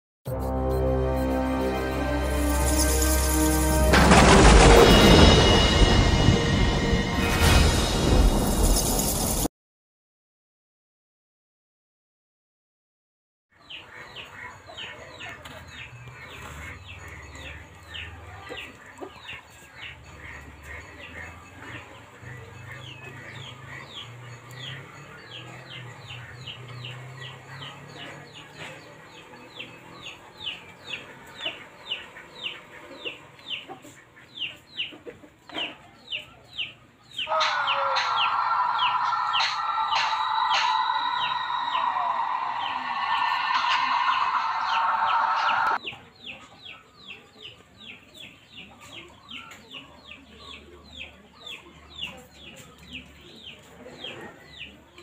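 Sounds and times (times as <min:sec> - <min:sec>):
chicks peeping: 0:13.6 - 0:55.0
rooster crowing: 0:37.3 - 0:45.8.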